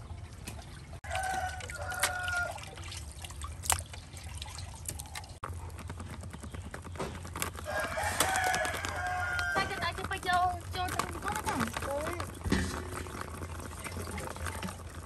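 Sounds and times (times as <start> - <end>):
rooster crowing: 1.0 - 2.8, 7.6 - 9.9.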